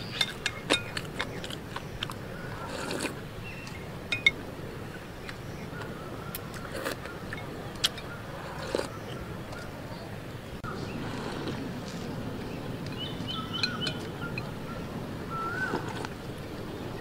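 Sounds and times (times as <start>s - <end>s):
soft sipping: 1.0s - 3.2s, 6.4s - 9.0s, 10.8s - 12.1s.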